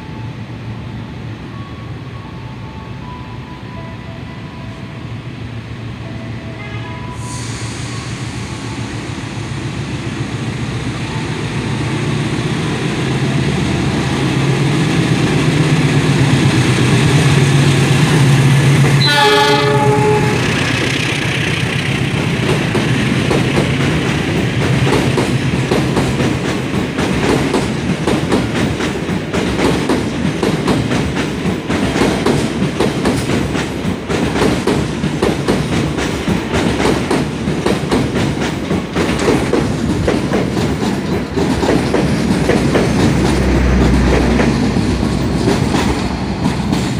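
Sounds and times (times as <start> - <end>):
train horn blast: 6.5 - 7.5, 19.0 - 20.7
locomotive engine hum: 8.8 - 28.0, 35.1 - 46.9
train wheels clickety-clack: 13.4 - 46.9.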